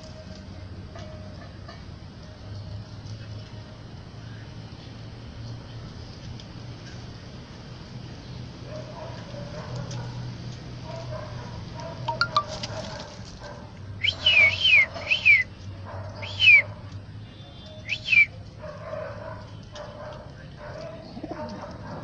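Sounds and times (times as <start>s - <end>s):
high whistled calls: 14.0s - 15.5s, 16.2s - 16.7s, 17.7s - 18.3s
pigeons cooing: 18.6s - 22.0s.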